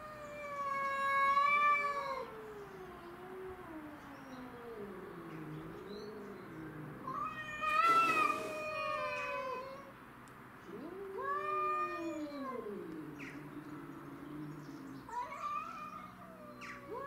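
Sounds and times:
cats yowling: 0.0 - 10.0, 10.7 - 17.0
cat hissing: 7.1 - 9.2.

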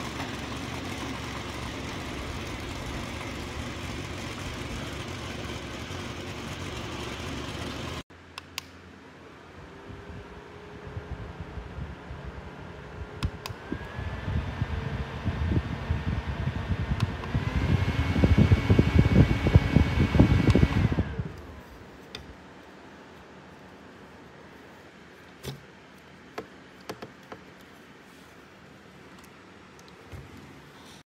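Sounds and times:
desk fan motor whine: 0.0 - 8.0, 9.1 - 27.6
airflow buffeting microphone: 9.9 - 22.4.

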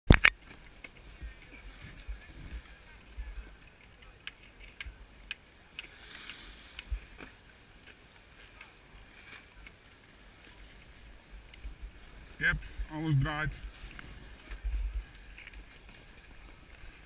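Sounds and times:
wind rumble on microphone: 1.1 - 3.6, 10.9 - 17.0.

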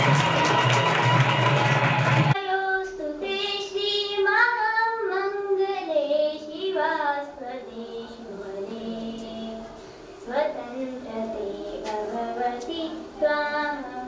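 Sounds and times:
loud dance music: 0.0 - 2.4.

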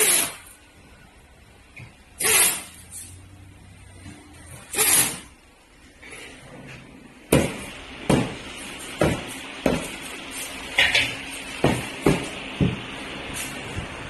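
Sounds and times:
workshop background noise: 0.0 - 14.0
hammer knocking: 11.6 - 12.8.

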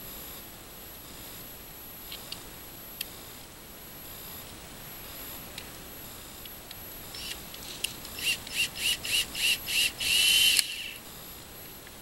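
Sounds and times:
cordless drill driving screw: 7.2 - 11.0.

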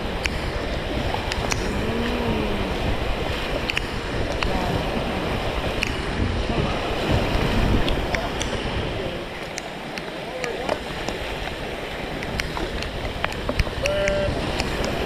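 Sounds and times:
river rapids rushing: 0.0 - 15.0
small sharp ticks: 3.7 - 3.9.

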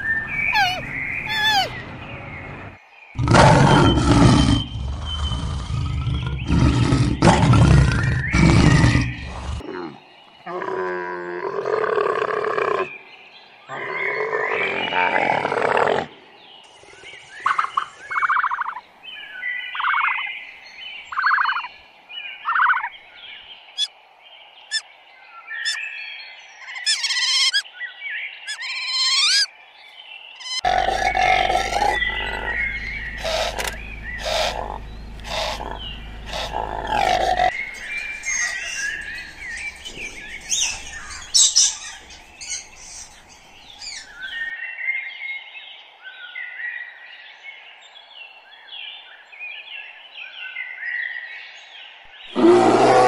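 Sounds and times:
high chirps and whistles: 0.0 - 1.8
short animal calls: 0.5 - 1.7, 30.4 - 42.7
loud low animal call: 0.5 - 1.8, 3.2 - 12.9, 30.6 - 44.4, 52.3 - 53.0
overlapping animal calls: 0.5 - 1.8, 21.1 - 21.7, 26.6 - 27.6, 28.5 - 29.5, 30.4 - 44.5
steady low hum: 30.7 - 44.2.

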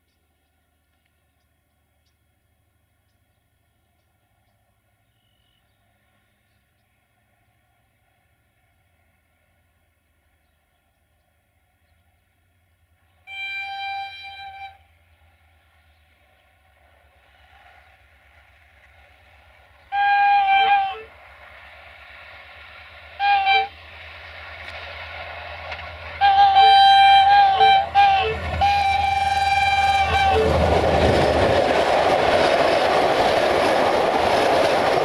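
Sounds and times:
train wheels on rails: 0.0 - 35.0
locomotive engine rumble: 5.7 - 35.0
locomotive horn blasts: 13.3 - 15.0, 19.9 - 21.1, 23.2 - 23.8, 26.2 - 30.9.

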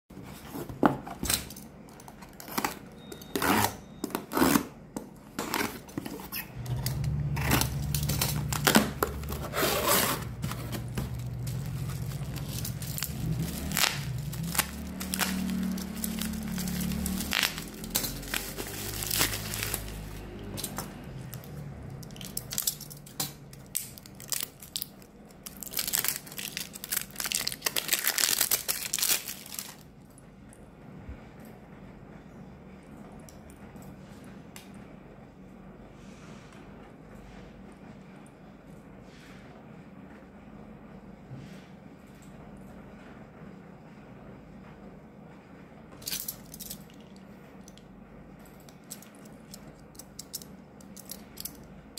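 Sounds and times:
low steady hum: 5.1 - 51.9
cardboard and plastic crinkling: 5.4 - 22.7, 23.5 - 29.8
packing tape tearing: 5.4 - 29.8
crackling: 10.3 - 22.8.

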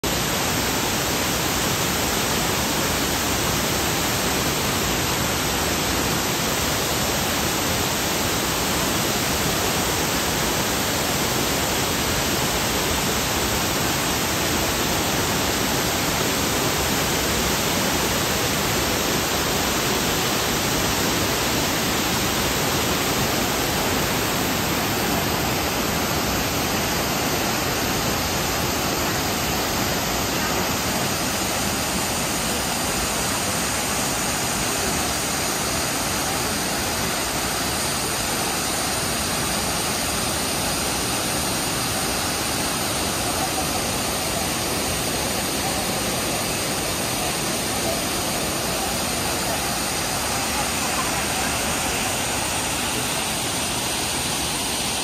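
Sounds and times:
waterfall rushing into a pool: 0.0 - 55.0.

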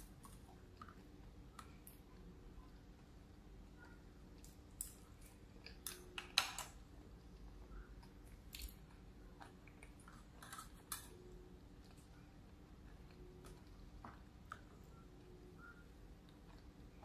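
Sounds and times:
person chewing food: 7.0 - 17.0.

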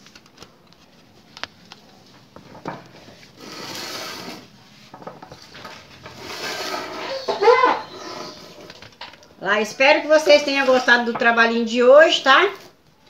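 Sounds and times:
rustling of things moved by hand: 0.0 - 9.3.

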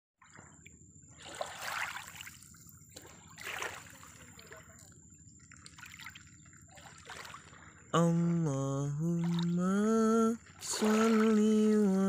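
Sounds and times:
low rumble of water: 0.2 - 12.0
small waves lapping over stones: 1.2 - 4.9, 5.5 - 7.9, 10.4 - 12.0.

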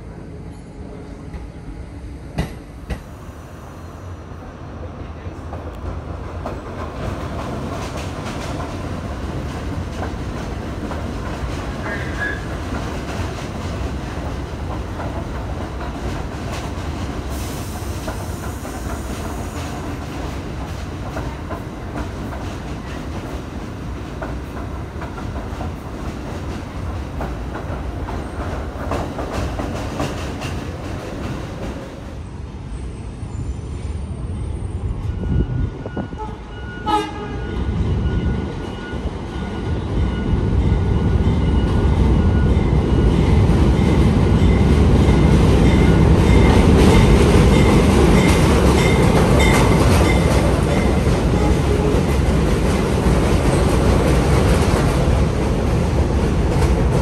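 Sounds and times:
subway train on track: 0.0 - 57.0.

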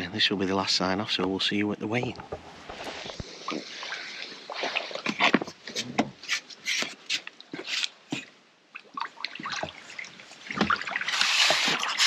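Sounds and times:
fishing tackle knocks and rustles: 4.5 - 8.3.

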